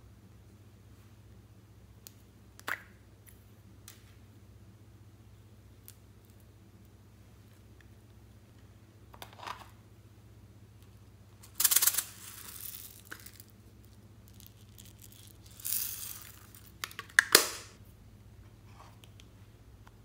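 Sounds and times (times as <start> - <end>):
plastic toys rattling: 11.4 - 17.3.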